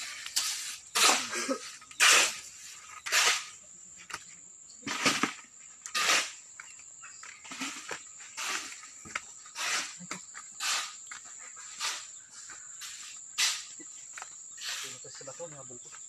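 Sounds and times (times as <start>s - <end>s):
shovel scraping concrete floor: 0.0s - 3.7s, 4.8s - 6.5s, 7.4s - 11.1s, 11.7s - 12.2s, 12.8s - 13.9s, 14.6s - 15.1s.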